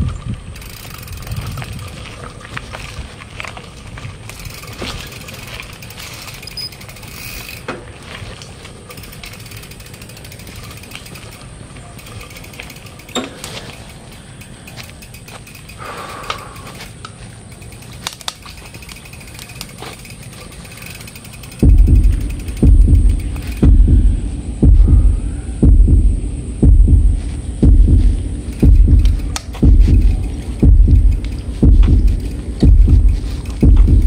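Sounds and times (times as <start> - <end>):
bicycle freewheel ratcheting: 0.0 - 25.6, 27.2 - 34.0
bicycle rattles: 0.0 - 34.0
tyre rumble on dirt: 25.9 - 34.0.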